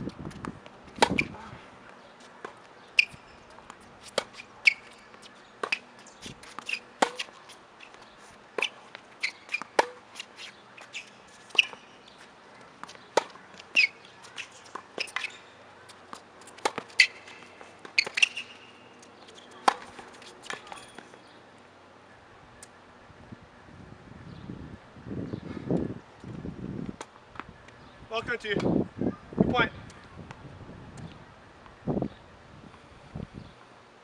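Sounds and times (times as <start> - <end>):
tennis balls struck and bouncing: 0.3 - 21.4.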